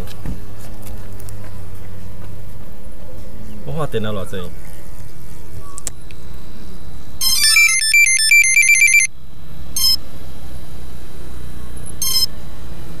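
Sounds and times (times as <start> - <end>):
buzzer playing electronic tune: 7.2 - 9.1
short buzzer beeps: 7.2 - 9.1.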